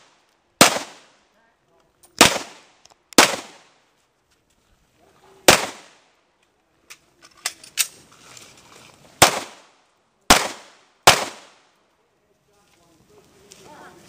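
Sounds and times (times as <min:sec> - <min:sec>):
handgun shots echoing: 0:02.2 - 0:03.6, 0:05.5 - 0:06.0, 0:10.3 - 0:11.6.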